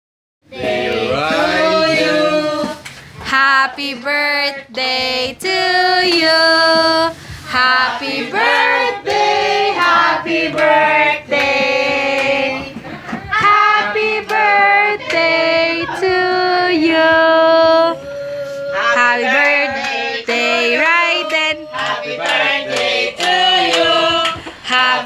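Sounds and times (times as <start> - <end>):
children singing: 0.6 - 2.8
woman singing: 0.6 - 9.2, 13.3 - 18.1, 18.7 - 21.9, 23.6 - 25.0.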